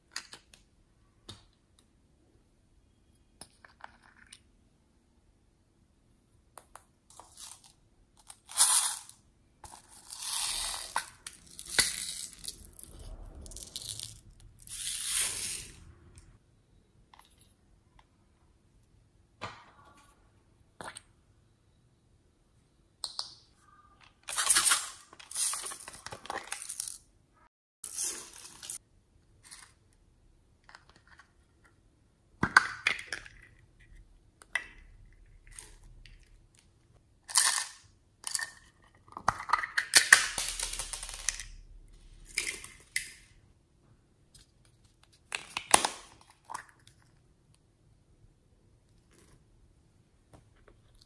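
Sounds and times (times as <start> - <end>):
beads rattling from plastic pots: 7.1 - 15.8, 24.3 - 27.0, 27.8 - 28.8, 37.2 - 41.5.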